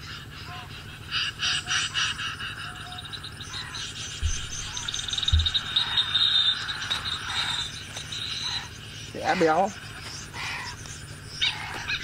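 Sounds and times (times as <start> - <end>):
recorded bird calls chirping: 0.0 - 12.0
dull low thumps: 4.1 - 6.0.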